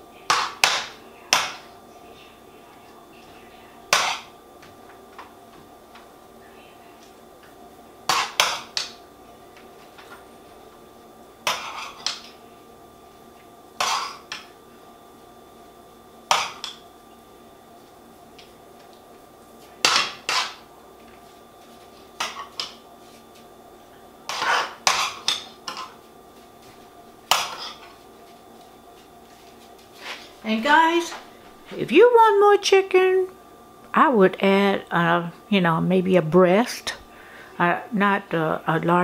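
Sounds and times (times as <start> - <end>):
metal spoon scraping skillet: 24.3 - 26.0.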